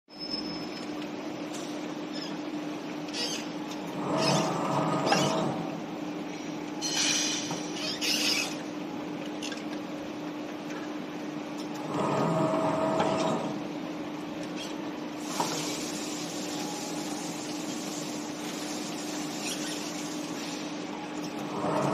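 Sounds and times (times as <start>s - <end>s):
metallic whirr of seaming: 3.1s - 5.8s.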